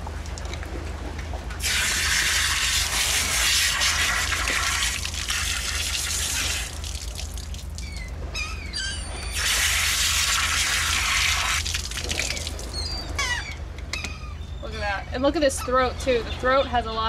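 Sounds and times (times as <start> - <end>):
hose spraying water: 1.6 - 7.6, 9.4 - 12.7
gull calls: 7.8 - 9.9, 12.3 - 16.5.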